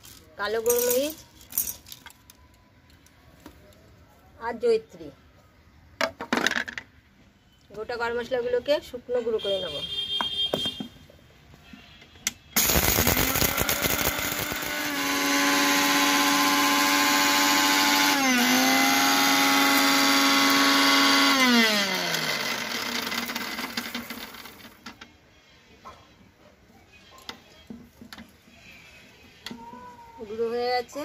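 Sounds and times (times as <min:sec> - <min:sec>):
mixer grinder grinding spices: 0:12.6 - 0:24.8.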